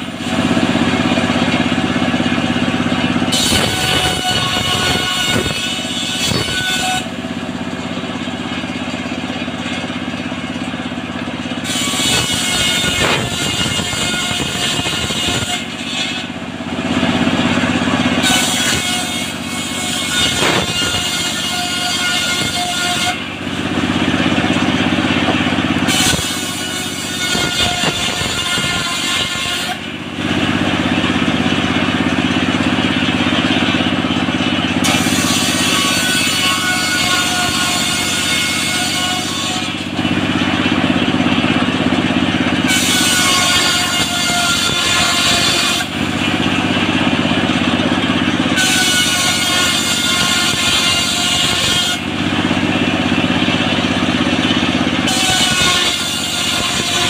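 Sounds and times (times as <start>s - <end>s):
saw blade cutting wood: 0.0s - 57.0s
sawmill engine running: 0.0s - 57.0s.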